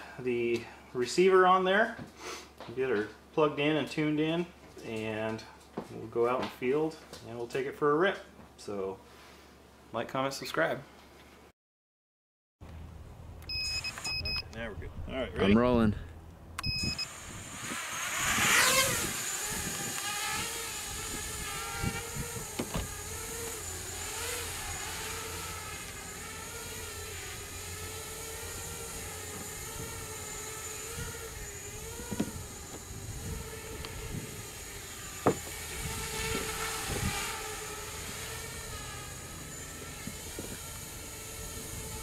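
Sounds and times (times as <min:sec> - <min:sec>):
quadcopter motors whining: 0:13.5 - 0:15.5, 0:16.6 - 0:42.0.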